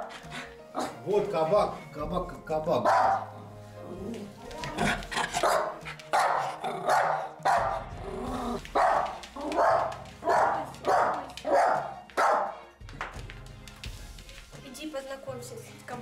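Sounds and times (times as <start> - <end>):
small dog barking sharply: 2.9 - 3.3, 5.4 - 7.8, 8.8 - 12.6.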